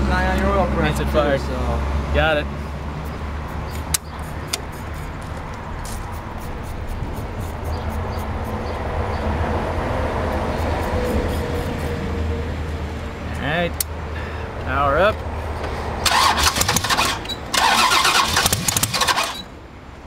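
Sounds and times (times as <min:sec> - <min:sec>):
engine cranking on starter: 0:16.0 - 0:19.5.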